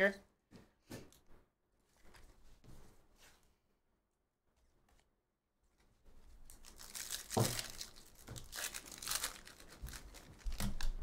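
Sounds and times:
foil wrapper tearing and crinkling: 0:06.4 - 0:11.0.

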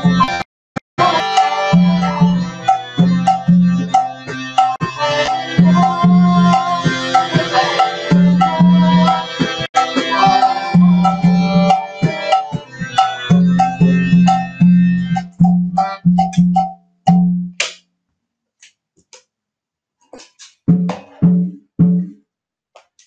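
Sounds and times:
harmonium chords: 0:00.0 - 0:16.7
tabla drum rhythm: 0:01.0 - 0:17.8, 0:20.2 - 0:22.2.

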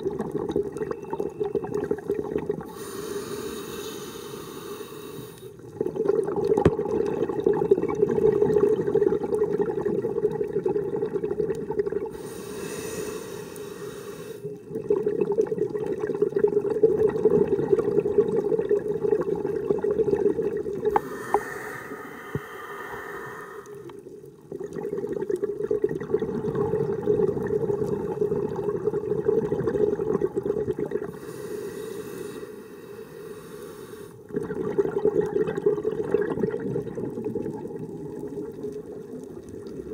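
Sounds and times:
hissing regulator inhalation: 0:02.7 - 0:05.6, 0:12.2 - 0:14.5, 0:20.9 - 0:24.0, 0:31.1 - 0:34.2
bubbling diver exhalations: 0:05.7 - 0:13.2, 0:14.7 - 0:31.9, 0:34.2 - 0:39.9.

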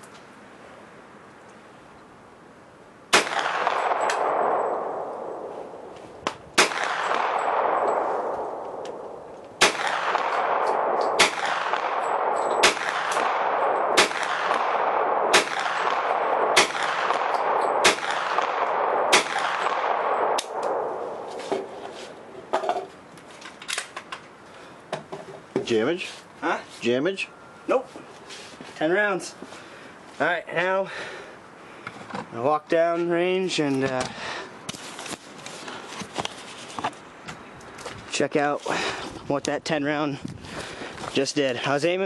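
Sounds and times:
gunshots with long echo: 0:03.1 - 0:05.9, 0:06.6 - 0:22.2.

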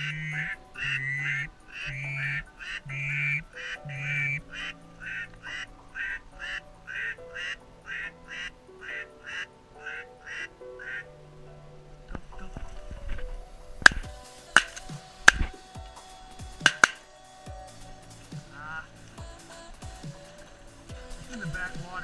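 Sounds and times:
duck quacking: 0:00.0 - 0:11.1
background music with held notes: 0:00.0 - 0:22.0.

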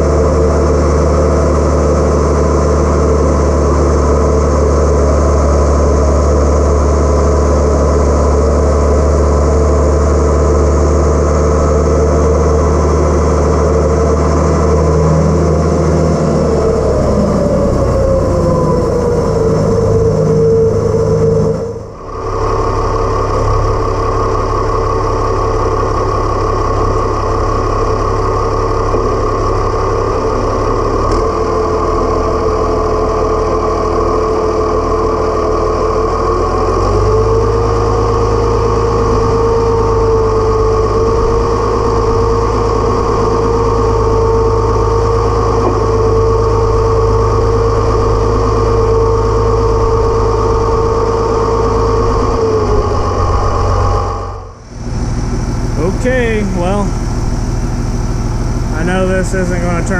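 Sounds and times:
tractor diesel engine running: 0:00.0 - 0:59.9.

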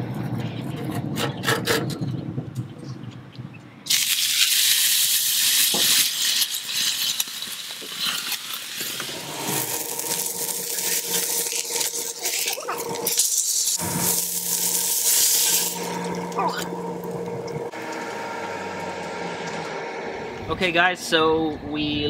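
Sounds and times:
beef sizzling on griddle: 0:03.9 - 0:16.6
faint steady hum: 0:09.2 - 0:22.0.

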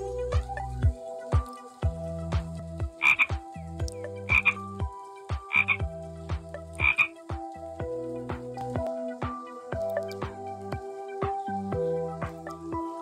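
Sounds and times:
toad croaking: 0:03.0 - 0:04.8, 0:05.4 - 0:06.0, 0:06.6 - 0:07.2.

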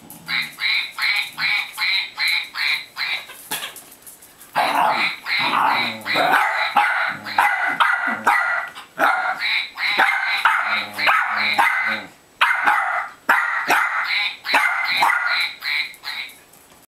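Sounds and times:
dogs barking: 0:04.6 - 0:15.6.

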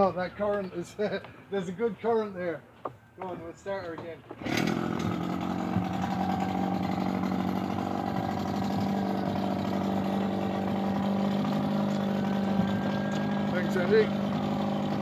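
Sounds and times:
outboard motor humming: 0:04.4 - 0:15.0.

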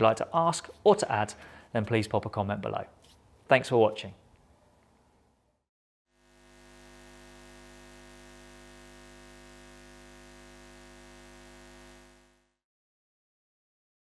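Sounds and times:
faint electrical hum: 0:06.2 - 0:12.4.

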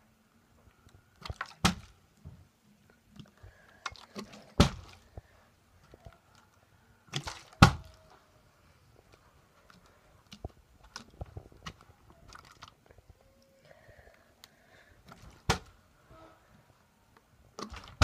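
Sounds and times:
plastic bottle crinkling: 0:09.7 - 0:13.1.

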